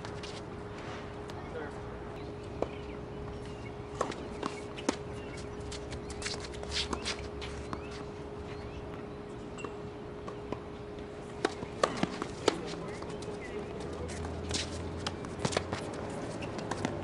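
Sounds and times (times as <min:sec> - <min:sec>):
footsteps on court: 0:00.0 - 0:00.5, 0:04.0 - 0:08.1, 0:11.4 - 0:17.0
faint hum: 0:00.0 - 0:17.0
tennis balls hitting rackets: 0:02.4 - 0:17.0
balls bouncing on hard court: 0:11.4 - 0:17.0.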